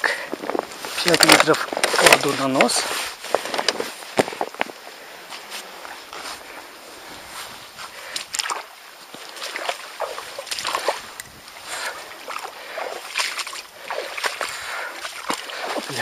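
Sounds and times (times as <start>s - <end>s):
shallow water splashing: 7.8s - 16.0s.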